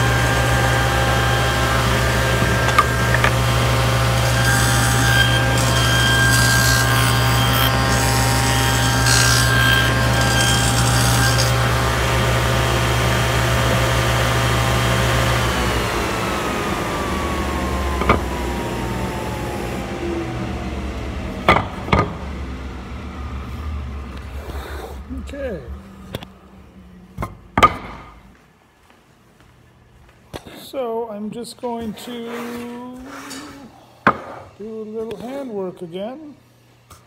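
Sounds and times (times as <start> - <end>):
table saw cutting wood: 0.0 - 26.2
sharp knocks: 21.4 - 22.2, 27.2 - 28.2.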